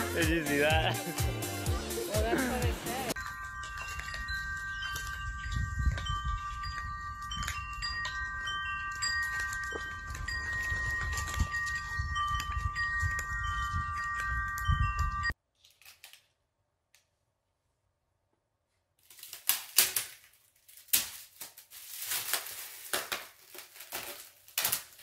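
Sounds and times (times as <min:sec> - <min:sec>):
wind chimes ringing: 0:00.0 - 0:15.4.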